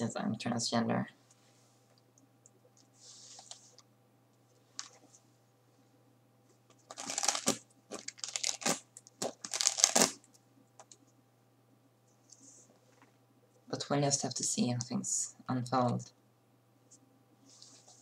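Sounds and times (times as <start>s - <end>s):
rustling crinkling handling noise: 6.5s - 11.0s.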